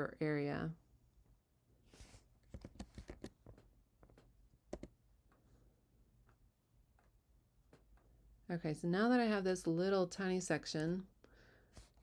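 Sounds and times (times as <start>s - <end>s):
keyboard and mouse clicks: 2.4s - 5.0s.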